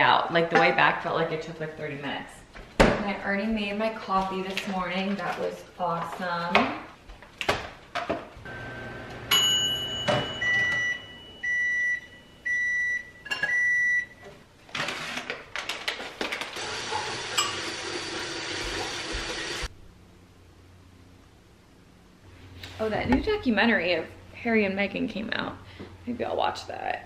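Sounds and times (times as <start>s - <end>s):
microwave oven beeping: 8.5s - 14.2s.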